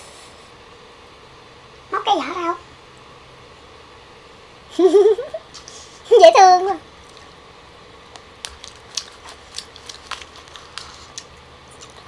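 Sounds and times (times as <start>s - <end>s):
grapes being bitten and chewed: 8.0s - 12.0s.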